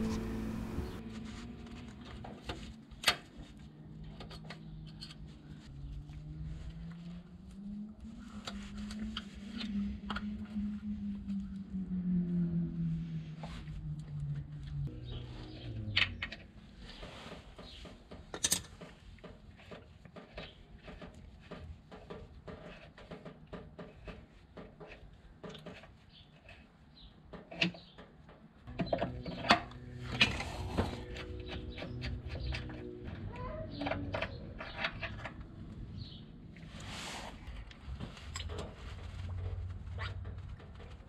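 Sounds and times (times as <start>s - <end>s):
low hum: 0.0s - 2.8s, 28.7s - 36.9s.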